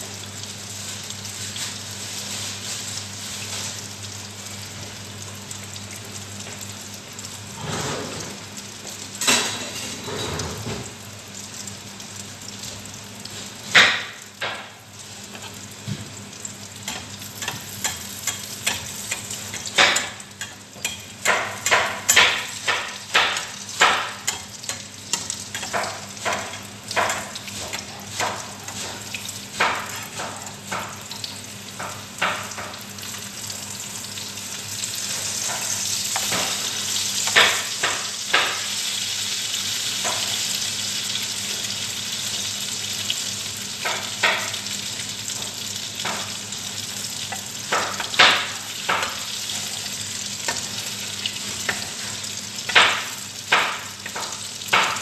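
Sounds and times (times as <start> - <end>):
food sizzling in oil: 0.0 - 55.0.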